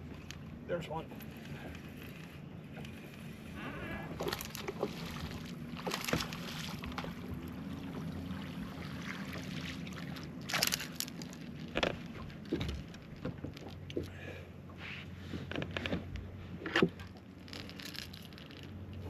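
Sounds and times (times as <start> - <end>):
low motor hum: 0.0 - 19.0
water splashing: 4.1 - 13.9.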